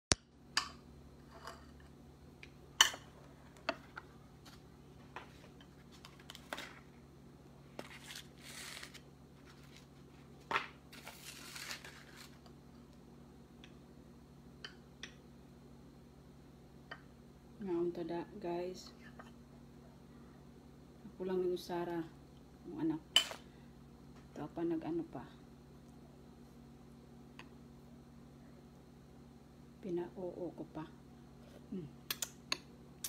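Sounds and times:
rustling scrapes: 7.7 - 12.5.

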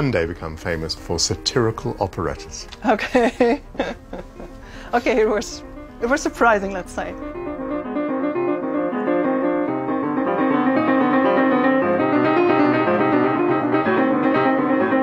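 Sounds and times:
piano music: 0.0 - 15.0.

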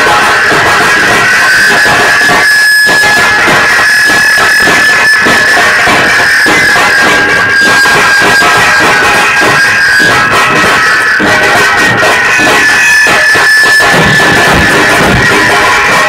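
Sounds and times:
drums beaten fast: 0.0 - 16.0
steady high-pitched tone: 0.0 - 16.0.

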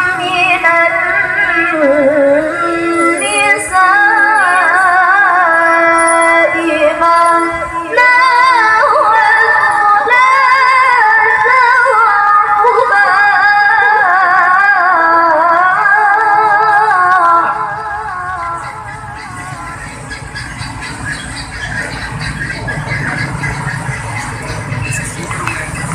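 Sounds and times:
woman chanting recitation: 0.0 - 19.9.

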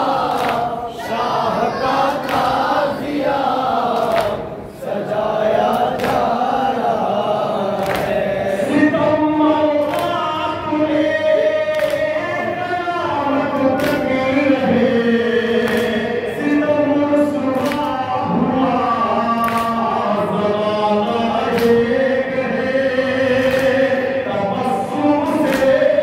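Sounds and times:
group singing in chorus: 0.0 - 26.0
man chanting over a microphone: 0.0 - 26.0
hands slapping chests: 0.2 - 0.7, 5.7 - 6.4, 7.8 - 8.2, 11.7 - 12.1, 13.8 - 14.1, 15.6 - 16.0, 19.4 - 19.7, 23.4 - 23.9, 25.4 - 25.9.

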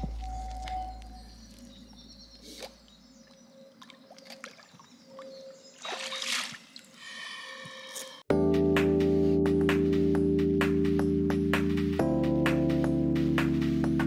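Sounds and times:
water sloshing and splashing: 0.0 - 7.0
background music: 8.3 - 14.0.

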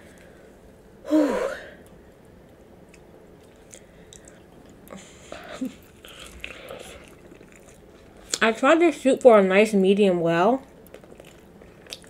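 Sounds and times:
biting into burger: 2.9 - 8.4
wet chewing: 2.9 - 8.5, 10.8 - 12.0.

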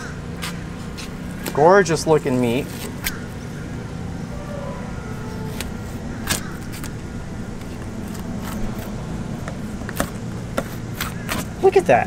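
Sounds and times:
motor humming: 2.7 - 11.0.

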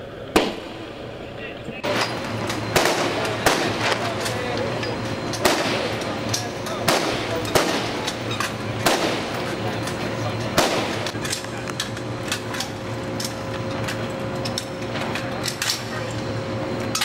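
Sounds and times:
steady low hum: 0.0 - 17.0
rifle shots: 0.3 - 0.9, 2.7 - 4.0, 5.4 - 6.0, 6.8 - 8.1, 8.8 - 9.4, 10.6 - 11.1.

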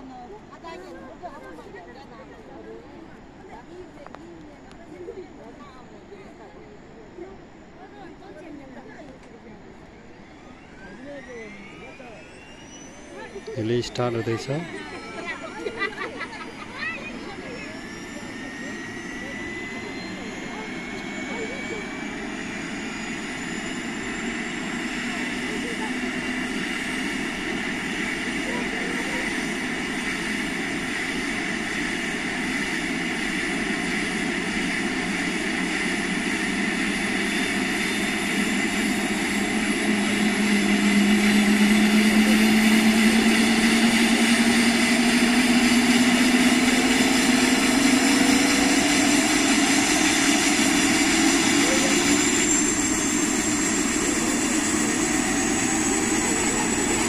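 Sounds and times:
helicopter turbine whine: 0.0 - 57.0.

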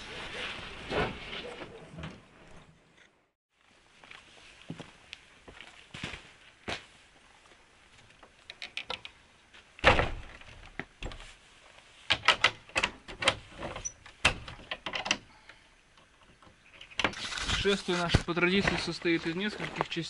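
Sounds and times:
wooden door thumping shut: 9.8 - 10.3.

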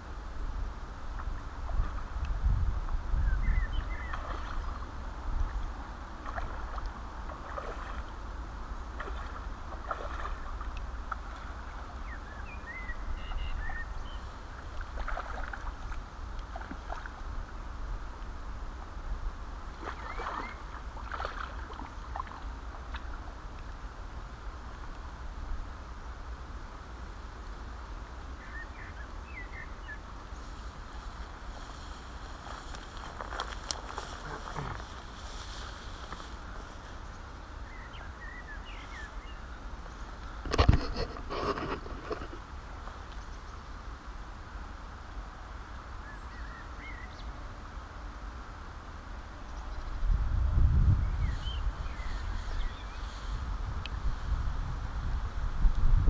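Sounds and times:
wind rumble on microphone: 0.0 - 56.0
bird chirps: 3.2 - 4.8, 12.0 - 14.3
water splashing: 4.0 - 8.2, 8.9 - 12.1, 14.5 - 17.3, 19.6 - 23.7
outdoor hiss: 21.8 - 40.5
rustling: 30.4 - 37.2.

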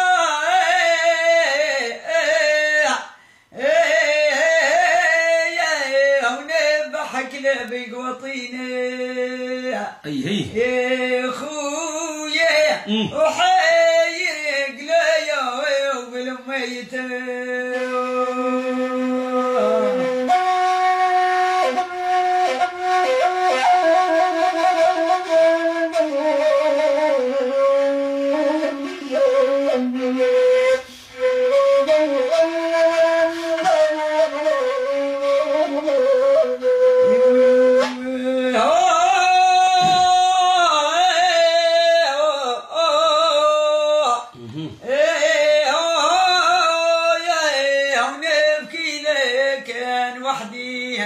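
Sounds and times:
end-blown flute melody: 18.6 - 38.1.

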